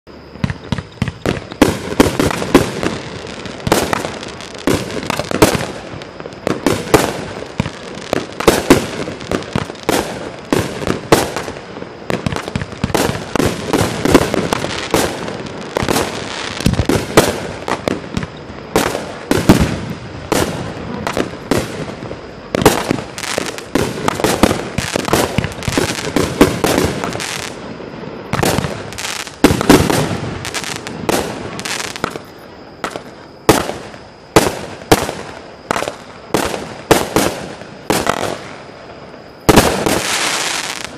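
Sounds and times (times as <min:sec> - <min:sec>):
fireworks launching and bursting: 0:00.1 - 0:40.9.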